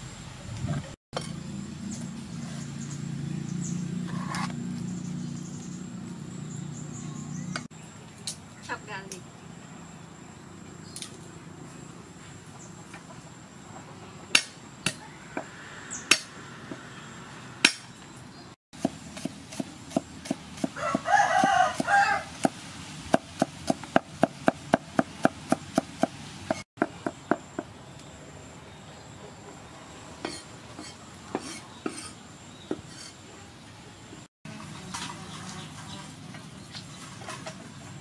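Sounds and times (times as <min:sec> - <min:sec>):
cleaver chopping on wooden board: 0:17.6 - 0:17.9, 0:18.8 - 0:27.7
rooster crowing: 0:20.7 - 0:22.4.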